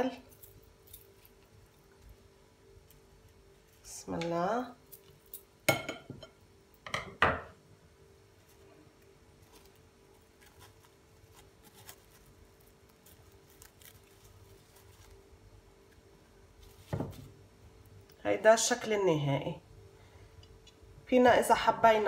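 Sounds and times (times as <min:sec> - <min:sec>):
plastic film crinkling: 0:08.4 - 0:17.4.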